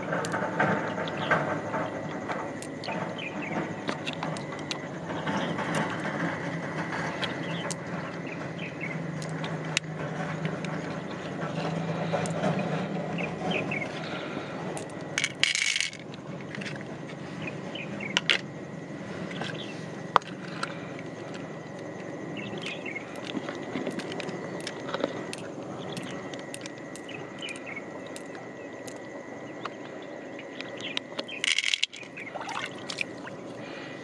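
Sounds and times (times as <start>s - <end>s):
pearls clicking against shell: 31.4s - 32.1s.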